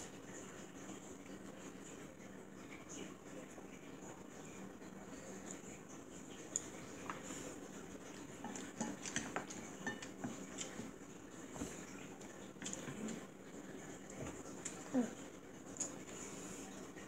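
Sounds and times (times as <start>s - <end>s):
chopsticks clicking on plates: 8.4s - 10.9s.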